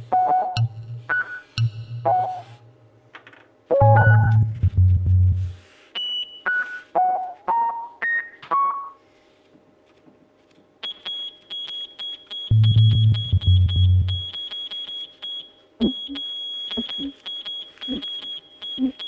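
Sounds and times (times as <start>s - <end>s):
short pitched beeps: 10.8s - 19.0s
steady high beeping tone: 10.9s - 19.0s.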